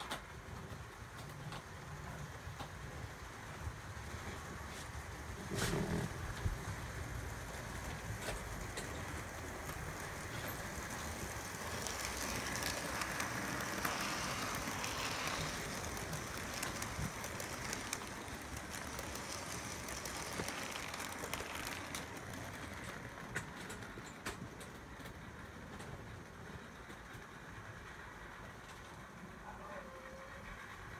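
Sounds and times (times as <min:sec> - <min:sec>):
model train running: 0:00.0 - 0:30.9
wheels clicking over rails: 0:00.0 - 0:30.9.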